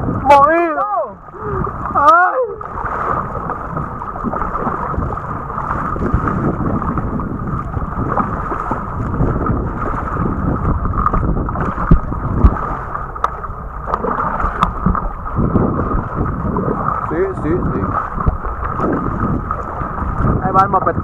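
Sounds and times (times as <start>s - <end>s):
kayak paddle strokes: 0.0s - 21.0s
water splashing against hull: 0.0s - 21.0s
wind buffeting microphone: 0.0s - 21.0s
low thumps: 3.0s - 21.0s.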